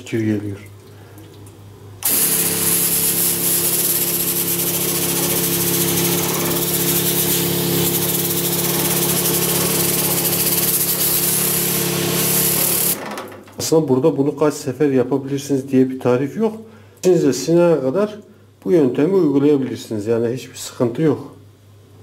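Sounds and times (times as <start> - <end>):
electric sprayer pump humming: 2.0 - 13.2.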